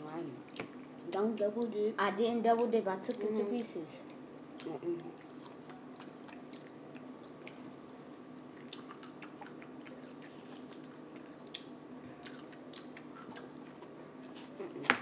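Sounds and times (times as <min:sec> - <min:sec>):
faint steady hum: 0:00.0 - 0:15.0
people chewing food: 0:00.3 - 0:01.8, 0:02.6 - 0:15.0
wet mouth clicks and smacks: 0:04.6 - 0:07.7, 0:08.3 - 0:14.4.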